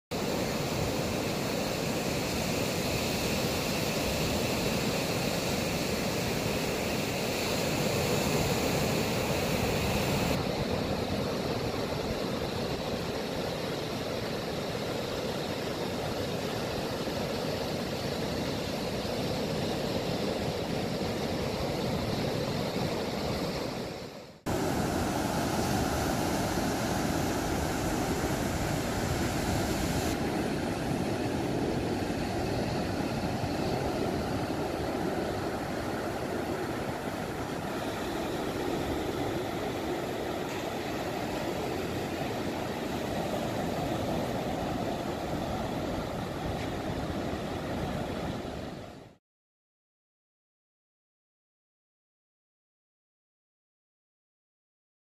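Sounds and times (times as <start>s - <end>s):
surf breaking on a beach: 0.1s - 49.2s.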